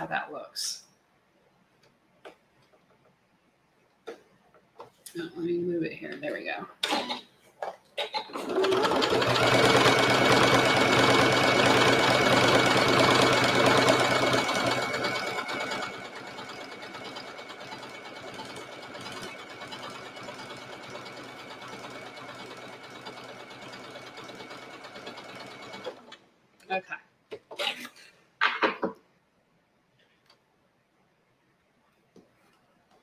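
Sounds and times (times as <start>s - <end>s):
sewing machine stitching: 6.8s - 7.2s, 8.0s - 26.2s.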